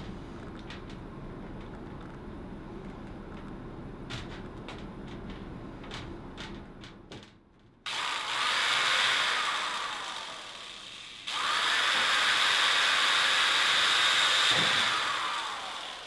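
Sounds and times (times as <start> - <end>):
electric drill running: 7.9 - 16.0.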